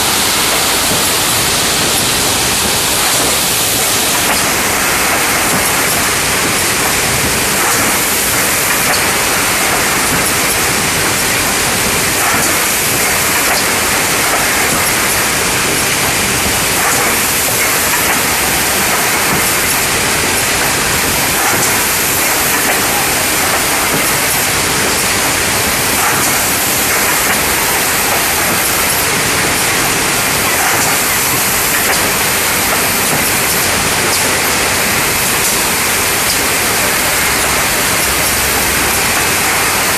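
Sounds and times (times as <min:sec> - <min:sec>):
rush of machine noise: 0:00.0 - 0:39.9.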